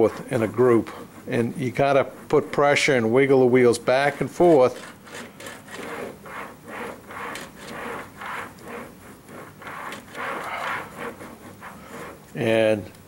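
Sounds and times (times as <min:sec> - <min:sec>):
model train wheels scrubbing towel: 0:00.0 - 0:12.8.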